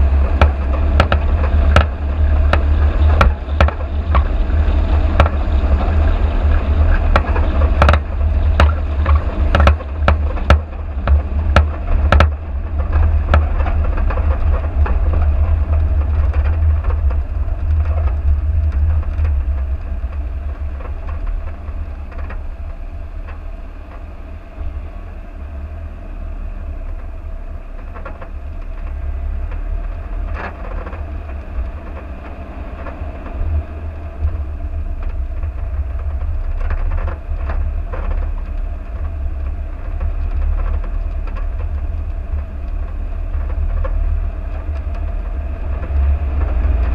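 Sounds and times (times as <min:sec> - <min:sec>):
knocks and rattles from bumps: 0:00.0 - 0:23.4
faint steady hum: 0:00.0 - 0:46.9
vehicle rumble on dirt track: 0:00.0 - 0:46.9.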